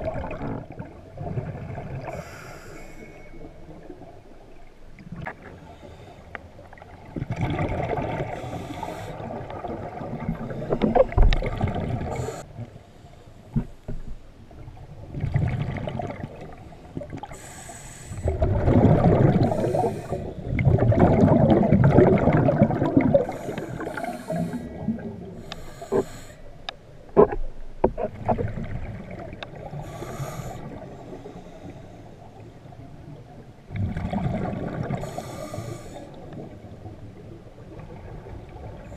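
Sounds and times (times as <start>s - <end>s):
exhaled bubbles rushing: 0.0s - 2.1s, 7.0s - 8.4s, 9.2s - 12.2s, 15.0s - 17.3s, 18.2s - 26.0s, 33.7s - 35.0s
diver breathing through regulator: 2.0s - 3.4s, 8.3s - 9.3s, 12.1s - 13.9s, 17.2s - 18.4s, 19.3s - 20.6s, 23.2s - 26.6s, 29.7s - 32.2s, 35.0s - 36.2s.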